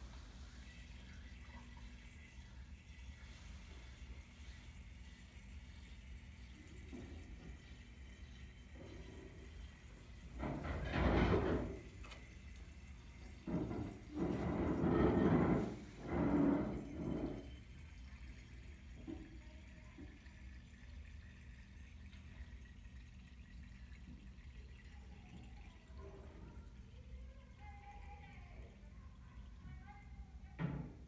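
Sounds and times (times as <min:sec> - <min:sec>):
swirling water draining: 0:00.0 - 0:27.6
water gurgling between bottles: 0:03.6 - 0:26.9.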